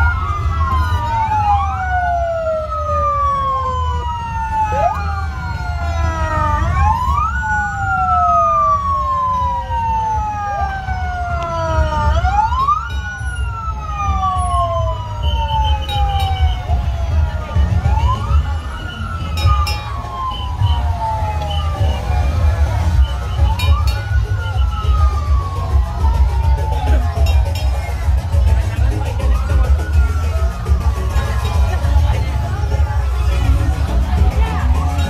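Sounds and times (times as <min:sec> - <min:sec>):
fire truck sirens wailing: 0:00.0 - 0:35.0.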